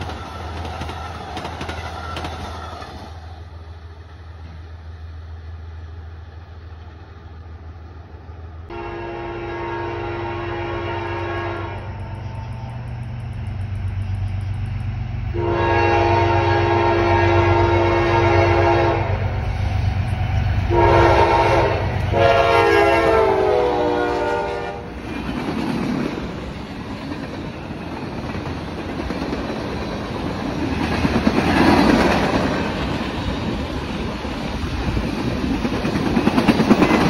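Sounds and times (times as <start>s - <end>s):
train wheels clacking on rails: 0.0s - 3.5s, 11.8s - 15.4s, 24.8s - 37.0s
diesel locomotive rumble: 0.0s - 37.0s
train air horn: 8.7s - 12.8s, 15.3s - 19.7s, 20.6s - 25.0s.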